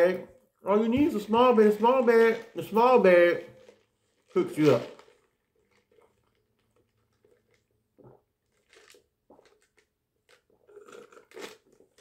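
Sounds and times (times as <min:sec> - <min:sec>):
sipping through a plastic straw: 0:03.5 - 0:12.0.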